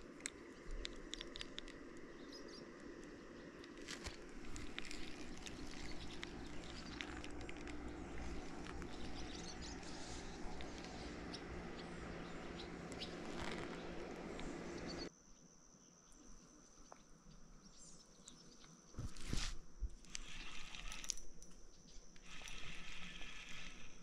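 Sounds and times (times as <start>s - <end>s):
birds chirping: 0.0s - 15.1s
small clicks: 0.0s - 15.1s, 18.2s - 24.0s.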